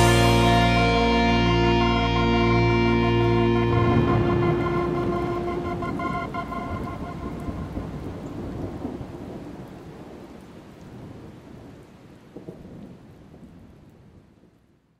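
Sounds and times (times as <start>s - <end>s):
organ-like chord: 0.0s - 7.4s
rain: 0.0s - 14.9s
rolling thunder: 3.6s - 11.8s.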